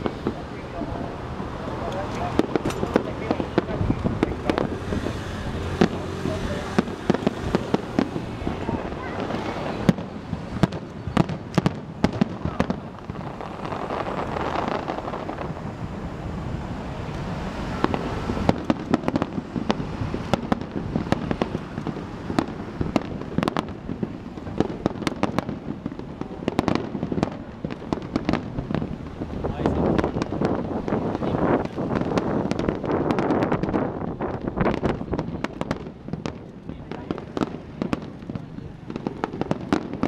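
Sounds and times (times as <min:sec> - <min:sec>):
fireworks bangs and crackles: 0:00.0 - 0:40.0.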